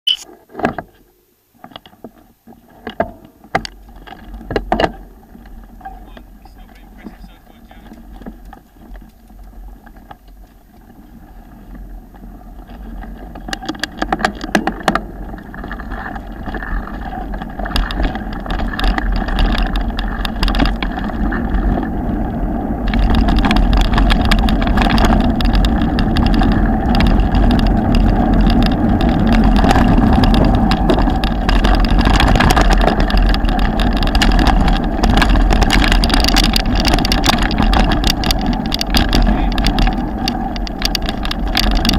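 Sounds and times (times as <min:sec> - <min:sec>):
bike clicks and rattles: 0:01.6 - 0:41.9
bike tyre rumble on dirt: 0:01.9 - 0:41.9
wind noise on microphone: 0:10.8 - 0:41.9.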